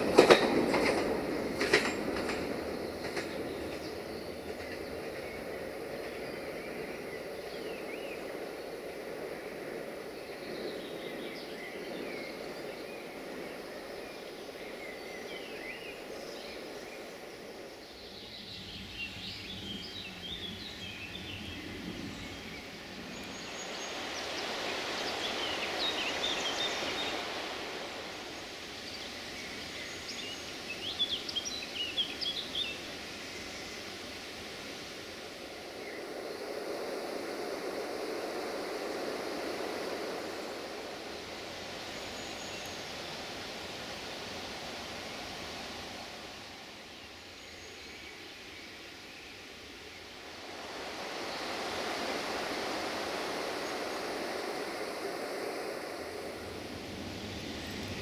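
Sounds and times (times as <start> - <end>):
songbirds chirping and singing: 0.0 - 27.5, 28.5 - 34.0
rushing noise: 0.0 - 47.4, 48.2 - 58.0.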